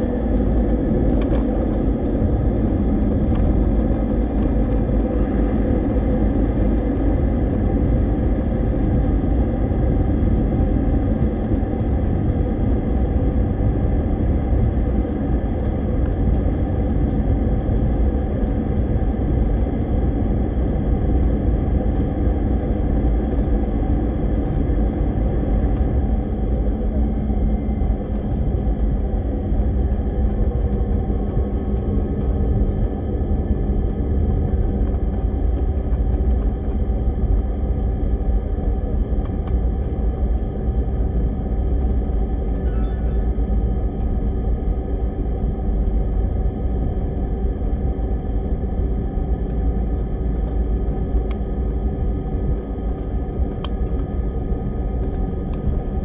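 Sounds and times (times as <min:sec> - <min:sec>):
jet engine rumble in cabin: 0:00.0 - 0:56.0.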